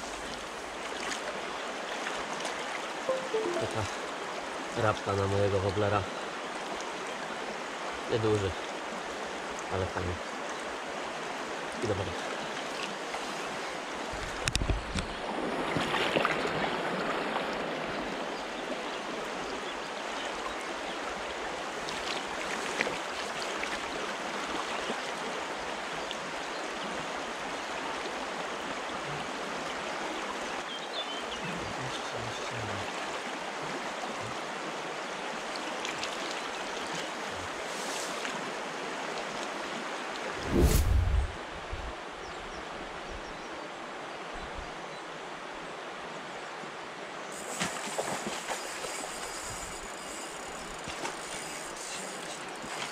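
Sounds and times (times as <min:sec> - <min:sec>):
river rushing over stones: 0:00.0 - 0:05.2.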